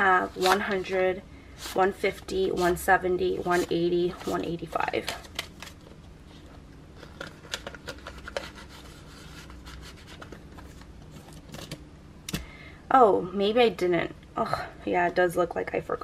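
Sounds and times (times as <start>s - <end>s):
paper pages rustling: 0.2s - 1.0s, 3.4s - 6.4s.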